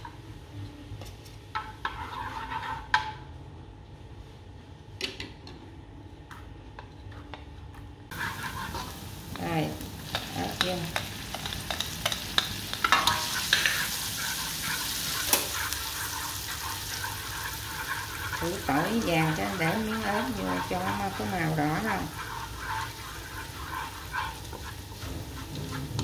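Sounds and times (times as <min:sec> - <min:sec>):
food sizzling in butter: 0:08.1 - 0:26.0
utensils clicking against pan: 0:10.1 - 0:26.0.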